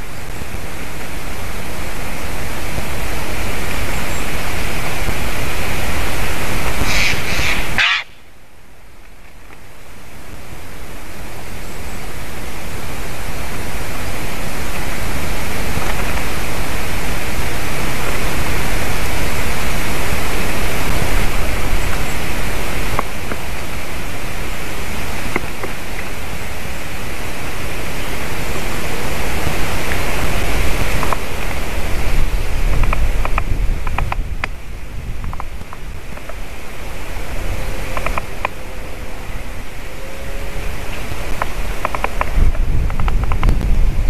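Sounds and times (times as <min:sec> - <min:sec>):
wind rushing on microphone: 0:00.0 - 0:08.4, 0:09.2 - 0:44.0
faint ticks: 0:32.8 - 0:34.6, 0:37.9 - 0:38.6, 0:40.9 - 0:43.8.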